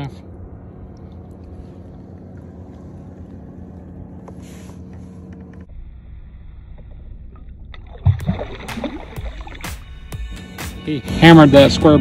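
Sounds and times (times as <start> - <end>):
low hum: 0.0 - 12.0
water noise: 0.2 - 4.7, 6.1 - 10.2.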